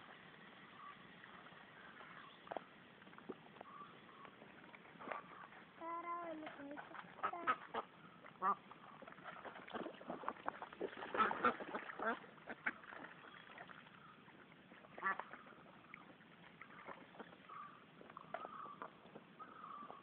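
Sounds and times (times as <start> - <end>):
ducks quacking: 6.7 - 9.4, 10.0 - 13.2, 14.9 - 15.5.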